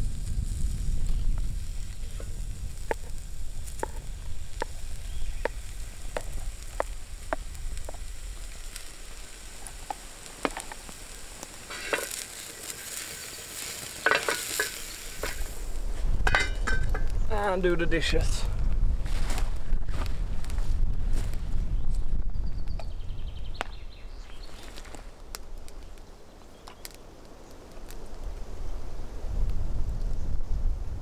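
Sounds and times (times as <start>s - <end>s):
food sizzling in a frying pan: 0.0s - 17.7s
spatula scraping in pan: 8.7s - 17.0s.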